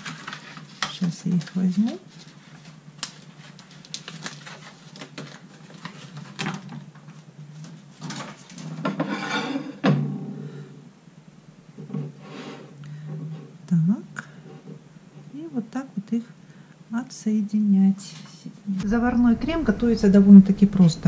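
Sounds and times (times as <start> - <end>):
foil sheet crinkling: 0.0 - 8.6.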